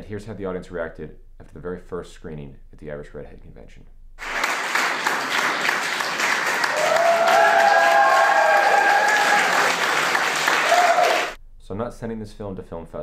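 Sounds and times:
audience applauding: 4.2s - 11.4s
long held whoops: 6.6s - 11.4s.

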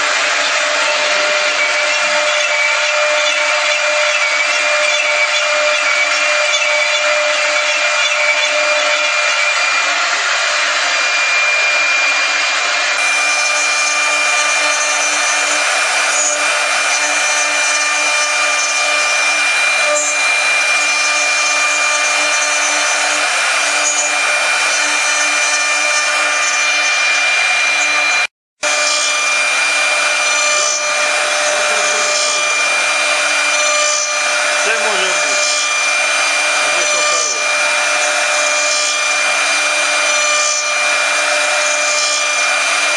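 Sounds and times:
router spindle high whine: 0.0s - 42.9s
hiss of wood cutting: 9.8s - 26.9s, 28.7s - 42.9s.

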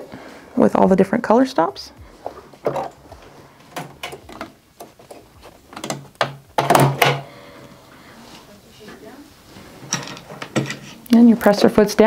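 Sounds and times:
hands clicking and knocking machine: 2.6s - 7.2s.

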